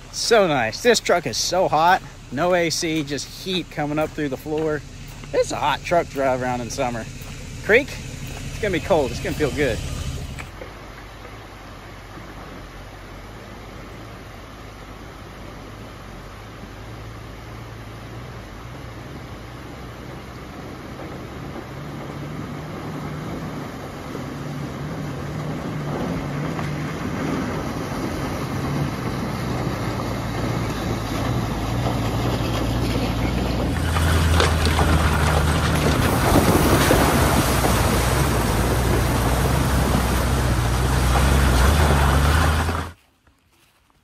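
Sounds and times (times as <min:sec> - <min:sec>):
truck engine running: 0:00.0 - 0:43.0
water washing around wheels: 0:00.0 - 0:43.8
tyre splashing water: 0:18.0 - 0:43.0.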